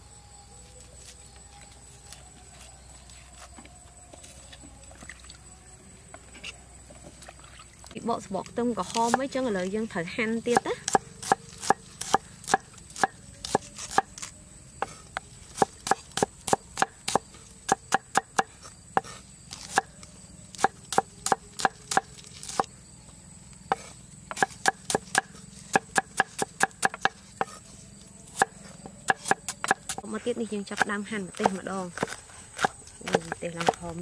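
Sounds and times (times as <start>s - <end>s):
cleaver chopping on wooden board: 10.5s - 15.0s, 15.6s - 19.9s, 20.6s - 22.7s, 23.7s - 27.6s, 29.1s - 30.0s, 30.8s - 34.0s.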